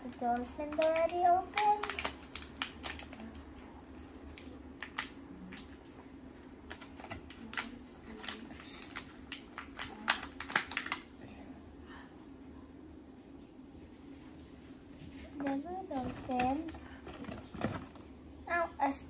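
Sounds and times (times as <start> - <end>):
packaging crinkles: 0.1 - 11.1.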